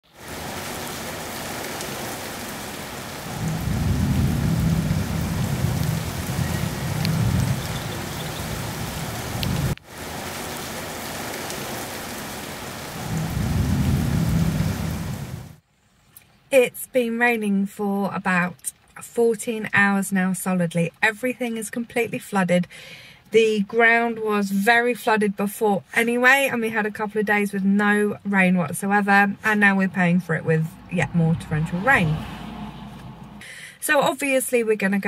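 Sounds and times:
heavy rain falling: 0.1s - 15.6s
low rumbles: 3.3s - 9.8s, 13.0s - 15.4s, 29.8s - 33.4s.

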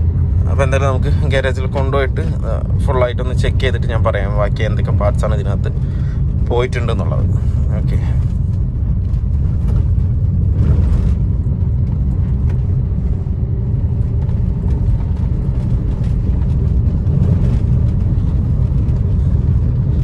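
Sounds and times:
car engine and road rumble: 0.0s - 20.0s.

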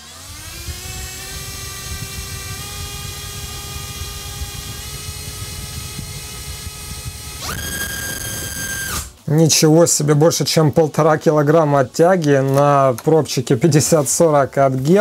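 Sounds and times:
electric motor propeller whine: 0.0s - 9.2s.

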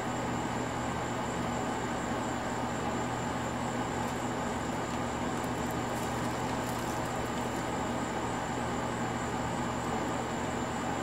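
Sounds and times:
low hum with hiss: 0.0s - 11.0s.

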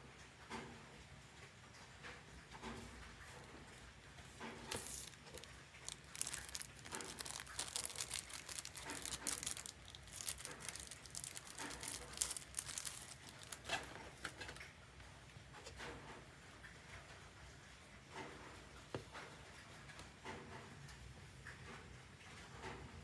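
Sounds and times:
plastic bag crinkling: 4.7s - 14.7s.

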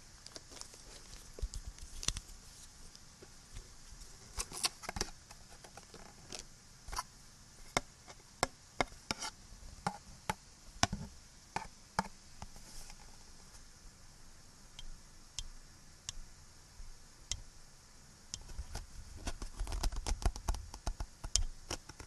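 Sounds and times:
recording hiss: 0.0s - 22.0s
tapping on small hard objects: 19.3s - 22.0s.

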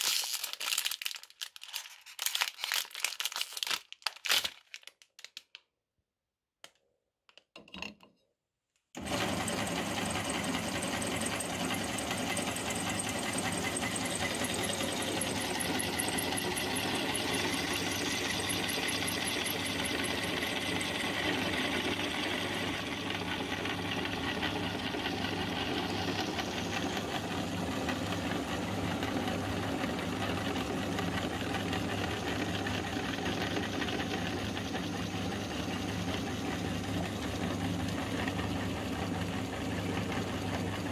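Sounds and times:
electric meat grinder humming: 9.0s - 40.9s.

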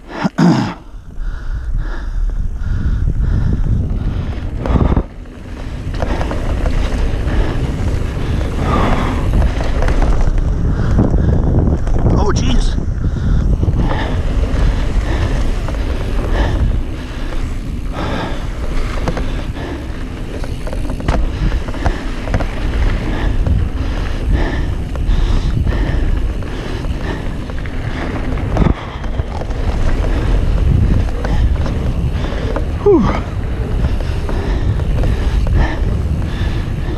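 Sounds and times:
bike rattles and clicks: 0.0s - 36.9s
wind buffeting microphone: 0.0s - 36.9s
tyres rumbling on dirt: 1.9s - 36.9s.

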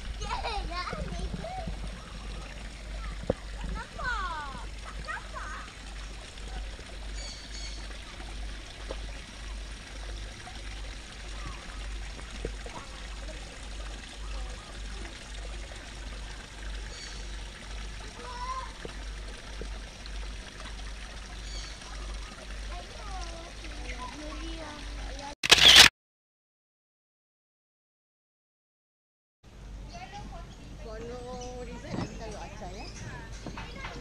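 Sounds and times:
waterfall splashing into pond: 0.0s - 25.9s.

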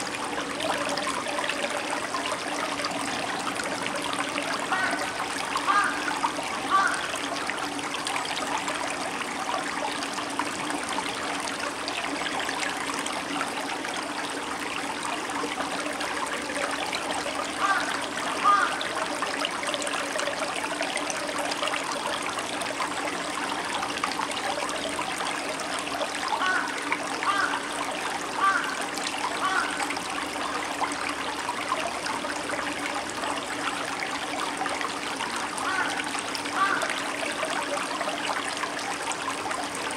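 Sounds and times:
stream babbling over stones: 0.0s - 39.9s
water gurgling: 0.0s - 39.9s.

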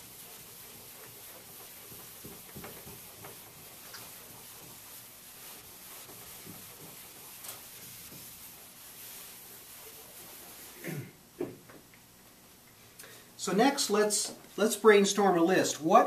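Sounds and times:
eraser wiping a chalkboard: 0.0s - 10.9s
steady background hiss: 0.0s - 16.0s.

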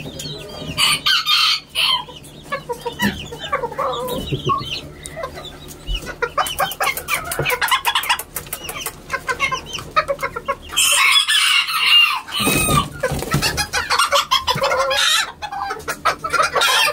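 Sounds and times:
roosters clucking: 0.0s - 16.9s
rooster crowing: 0.8s - 2.1s, 10.8s - 12.9s.

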